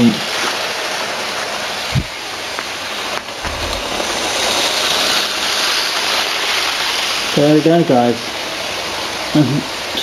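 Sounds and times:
model train running on track: 0.0s - 3.3s, 4.2s - 10.0s
short low rumble: 3.4s - 5.6s
low bump: 3.4s - 6.0s.

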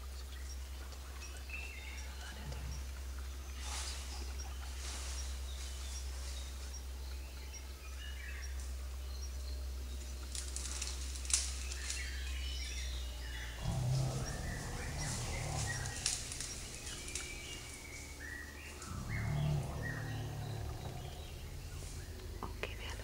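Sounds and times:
steady low hum: 8.3s - 23.0s
bird chirps: 11.8s - 23.0s.

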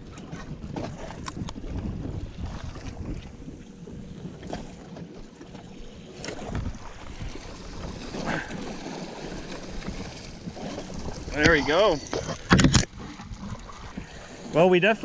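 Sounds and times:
water lapping at boat: 0.0s - 15.0s
wind buffeting microphone: 0.0s - 15.0s.

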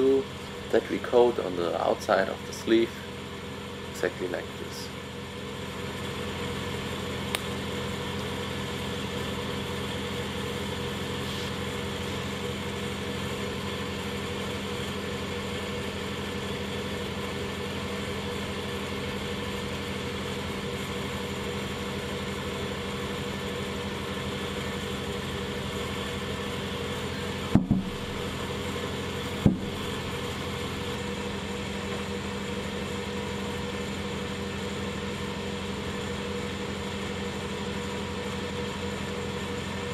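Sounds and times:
workshop machinery humming: 0.0s - 39.9s
short sharp knock: 27.5s - 28.0s, 29.4s - 29.8s.

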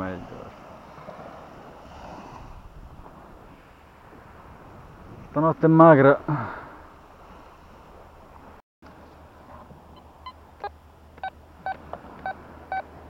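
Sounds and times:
metal detector beeping: 10.0s - 12.9s.

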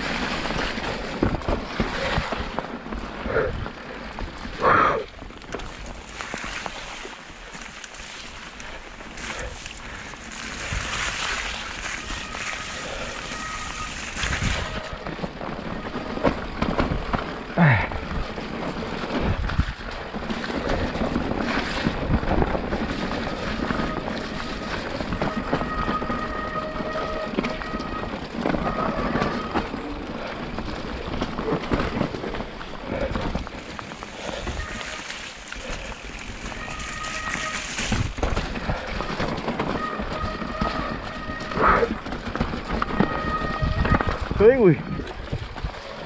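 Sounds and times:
bike rattling and knocking: 0.0s - 46.0s
tyres on wet ground: 0.0s - 46.0s
wind on camera: 10.5s - 15.2s, 19.1s - 29.9s, 35.6s - 45.9s.

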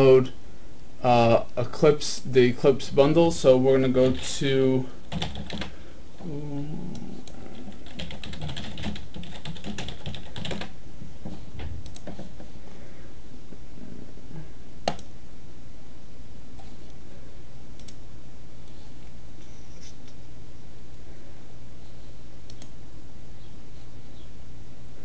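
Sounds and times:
computer keyboard typing: 5.1s - 5.7s, 7.5s - 10.7s, 11.9s - 12.4s.

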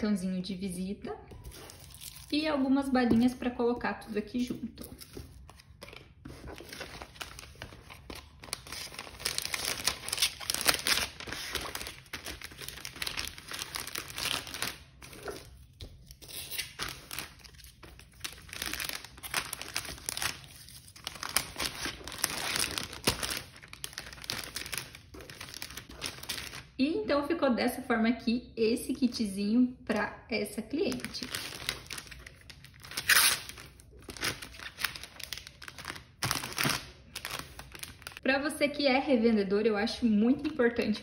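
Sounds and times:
plastic bag crinkling: 4.8s - 15.7s, 16.3s - 26.7s, 30.8s - 38.2s.

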